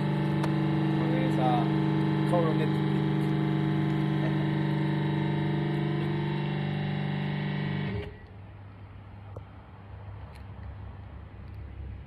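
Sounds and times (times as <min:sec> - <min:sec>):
electrical buzzing hum: 0:00.0 - 0:08.2.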